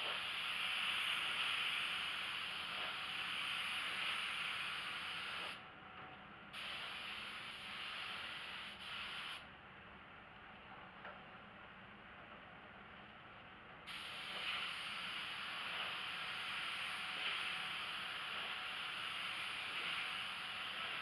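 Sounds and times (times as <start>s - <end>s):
spray gun hissing: 0.0s - 5.6s, 6.6s - 9.4s, 13.9s - 21.0s
quiet hiss of moving air: 0.0s - 21.0s.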